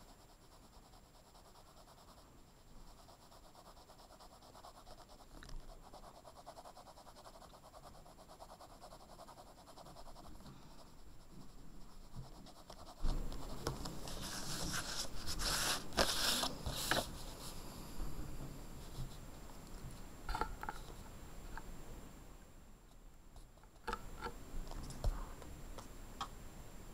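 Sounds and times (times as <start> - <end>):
pencil scratching on paper: 0.0 - 17.5
paper rustling: 13.0 - 17.4.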